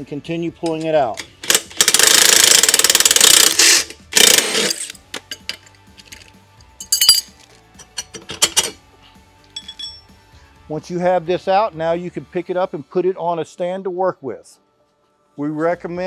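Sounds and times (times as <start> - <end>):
impact wrench hammering: 1.4 - 5.4
metallic clinks of tools: 4.7 - 8.8, 9.5 - 10.2.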